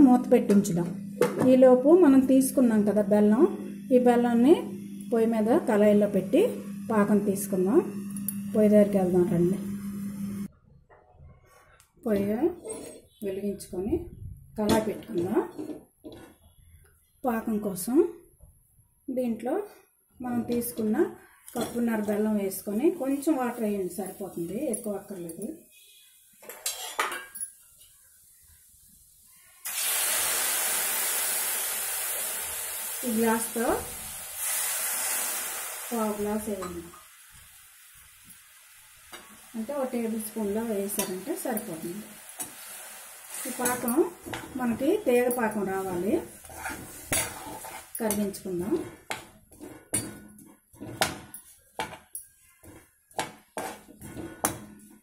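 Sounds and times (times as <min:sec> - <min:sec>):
metal ladle scraping a pan: 0:26.6 - 0:27.1, 0:42.4 - 0:55.0.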